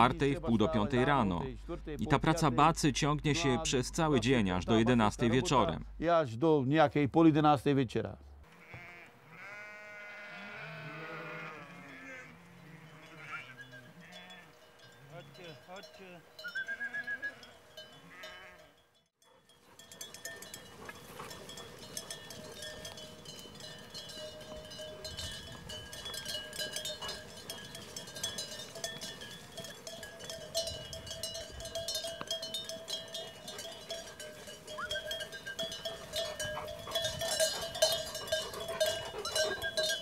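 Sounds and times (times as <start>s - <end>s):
sheep bells clanking: 0.0s - 1.4s, 2.2s - 5.8s, 11.1s - 40.0s
sheep bleating: 8.5s - 14.5s, 18.1s - 18.7s.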